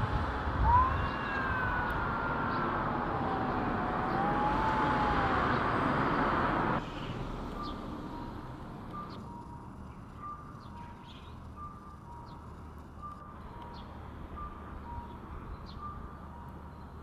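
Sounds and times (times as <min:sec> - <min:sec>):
low traffic rumble: 0:00.0 - 0:17.0
bird chirps: 0:06.9 - 0:07.9, 0:08.9 - 0:16.0.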